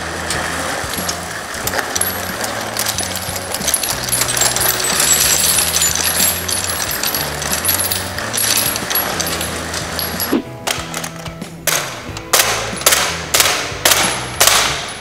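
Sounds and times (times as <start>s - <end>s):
brass cartridge cases clinking: 0.3s - 15.0s.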